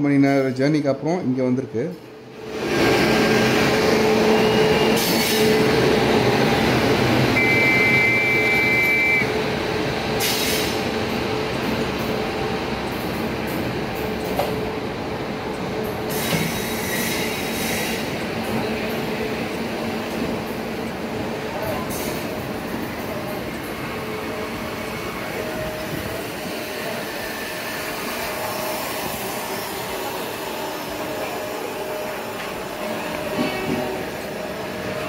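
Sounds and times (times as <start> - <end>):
passenger train rumbling past: 0.0 - 35.0
high steady tone: 7.4 - 9.3.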